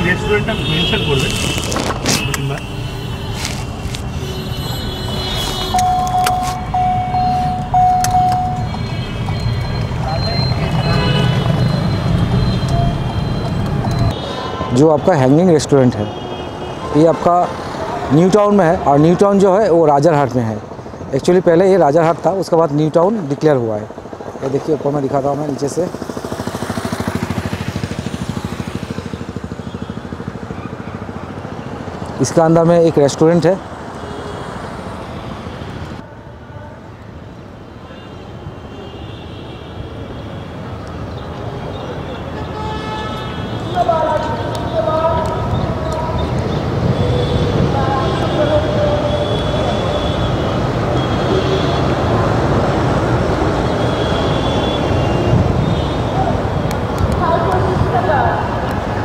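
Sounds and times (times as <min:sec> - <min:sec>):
vehicle road and engine rumble: 0:00.0 - 0:14.2.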